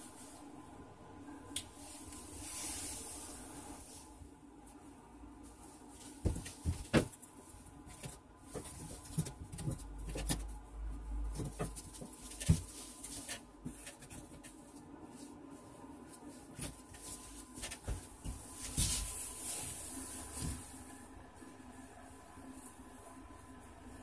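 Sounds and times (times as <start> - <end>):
knocks taps and rustles: 7.8 - 10.5, 11.2 - 14.6.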